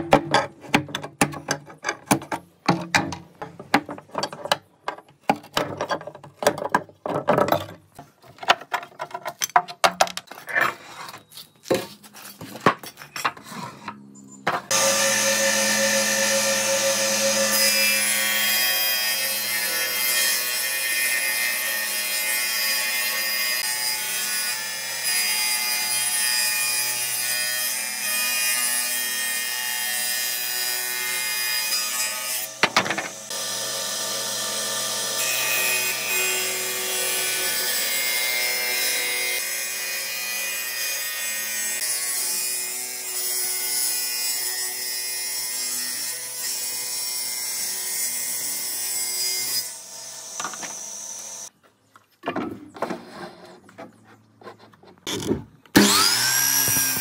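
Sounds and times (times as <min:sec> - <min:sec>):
knocks and scrapes on wood: 0:00.0 - 0:14.7, 0:52.2 - 0:55.5
power tool whining: 0:55.2 - 0:57.0.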